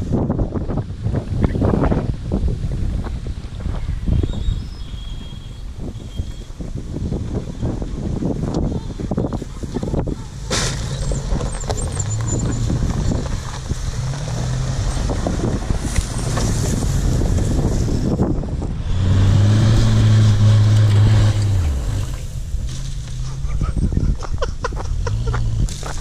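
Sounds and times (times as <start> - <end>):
off-road engines humming: 0.0 - 26.0
pickup engine revving uphill: 5.7 - 26.0.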